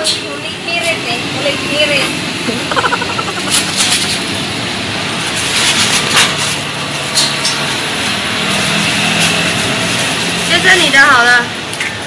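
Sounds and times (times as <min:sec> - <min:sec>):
motor scooters passing: 0:02.2 - 0:06.0, 0:06.6 - 0:11.6.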